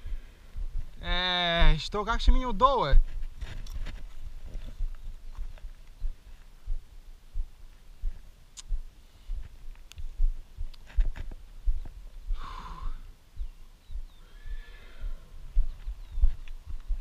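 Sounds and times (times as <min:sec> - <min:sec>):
horse whinnying: 0:14.2 - 0:15.3.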